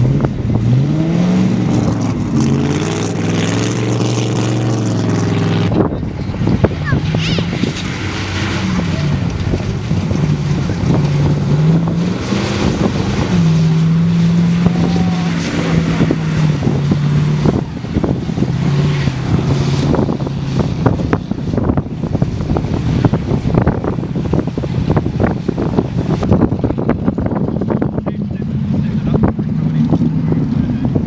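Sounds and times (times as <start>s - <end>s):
truck engine running at low revs: 0.0s - 31.0s
wind buffeting microphone: 0.0s - 31.0s.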